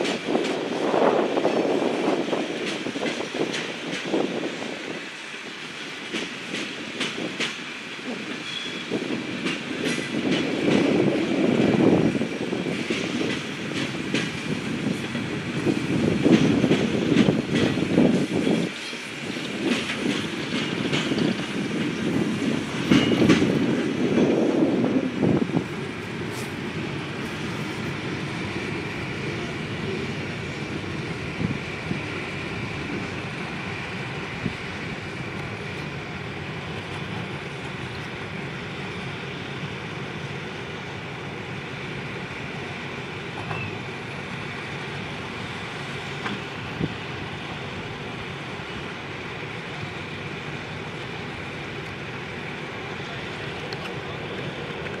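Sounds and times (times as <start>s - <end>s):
steel wheels rumbling on rail: 0.0s - 55.0s
sharp rail clacks: 16.2s - 23.8s.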